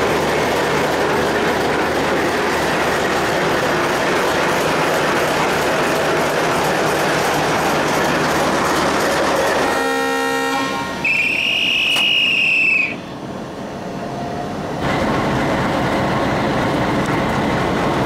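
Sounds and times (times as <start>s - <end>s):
wheels on rails: 0.0s - 12.5s
diesel locomotive engine: 0.0s - 18.0s.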